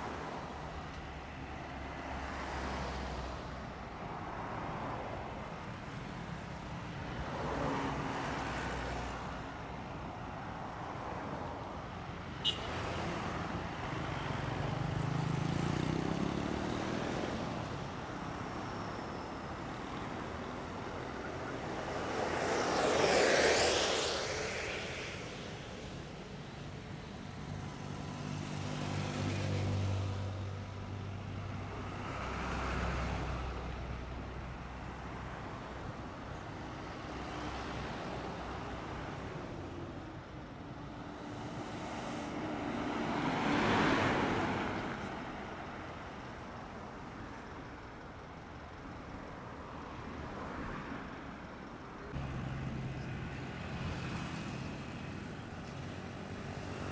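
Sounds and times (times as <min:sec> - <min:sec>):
road traffic passing: 0:00.0 - 0:56.9.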